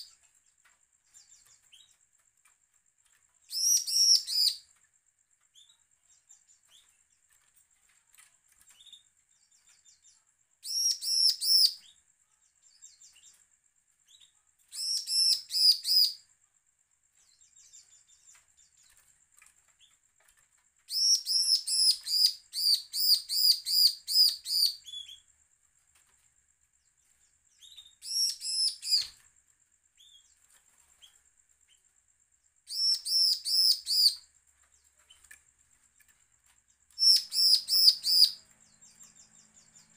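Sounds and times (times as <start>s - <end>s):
bird ringing song: 0.0s - 2.0s, 3.1s - 7.5s, 8.5s - 16.3s, 17.1s - 25.4s, 26.8s - 29.3s, 29.9s - 31.9s, 32.6s - 36.1s, 36.7s - 39.9s
faint ticks: 17.2s - 20.9s, 34.4s - 37.0s.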